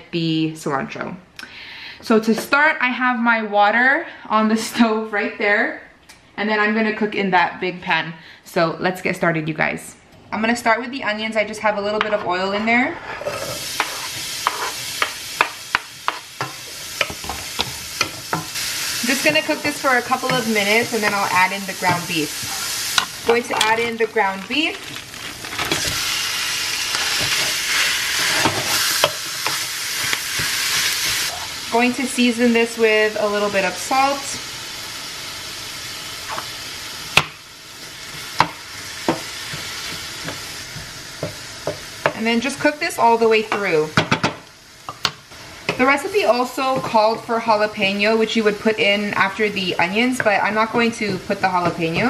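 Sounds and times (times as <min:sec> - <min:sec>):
onion sizzling in oil: 0:12.6 - 0:52.0
wooden spoon knocking on pan: 0:38.4 - 0:42.2, 0:43.5 - 0:45.9.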